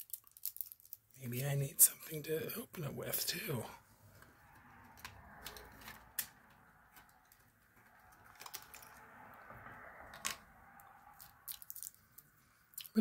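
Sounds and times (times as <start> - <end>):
small desk items clicking: 4.2 - 12.3.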